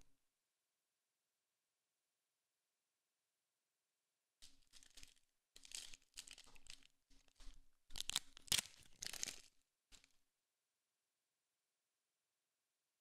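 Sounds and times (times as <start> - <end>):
foil wrapper tearing and crinkling: 4.4 - 10.1.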